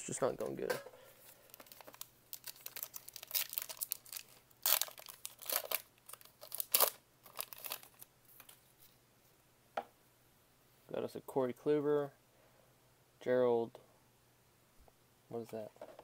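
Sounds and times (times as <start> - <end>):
plastic wrapper tearing and crinkling: 1.3 - 8.6.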